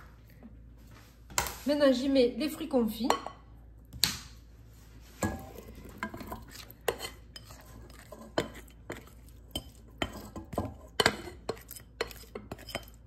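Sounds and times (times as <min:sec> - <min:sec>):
utensil clinking against bowl: 0:05.2 - 0:13.0.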